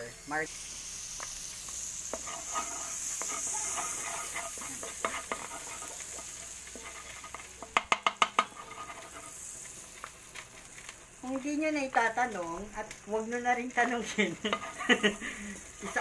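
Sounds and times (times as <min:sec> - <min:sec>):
butter sizzling: 0:00.0 - 0:16.0
wooden spatula scraping pan: 0:02.1 - 0:12.0, 0:13.9 - 0:16.0
spatula clacking against pan: 0:07.2 - 0:09.2, 0:14.5 - 0:15.0.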